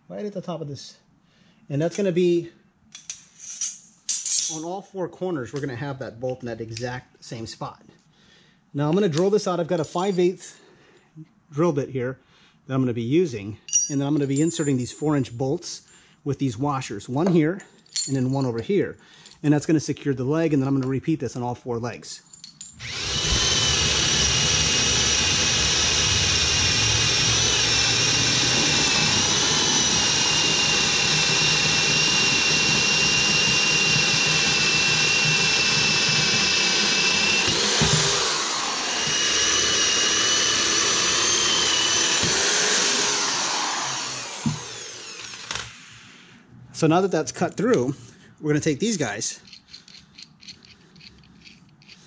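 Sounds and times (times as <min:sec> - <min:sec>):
electric drill boring wood: 0:22.8 - 0:46.0.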